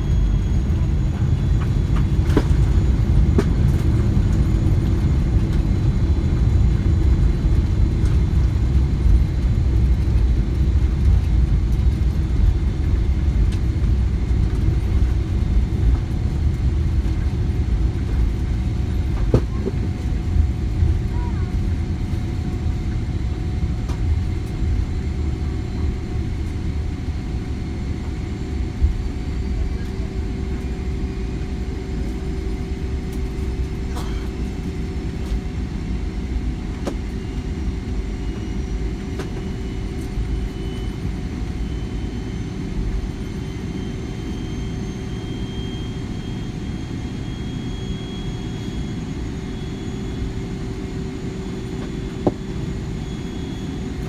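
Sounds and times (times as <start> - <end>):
aircraft engine rumble: 0.0 - 54.0
faint high whine: 18.8 - 54.0.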